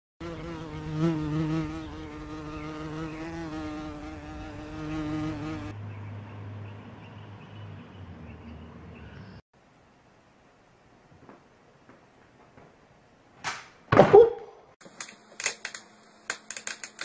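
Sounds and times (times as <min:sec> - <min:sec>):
flying insect buzzing: 0:00.2 - 0:05.7.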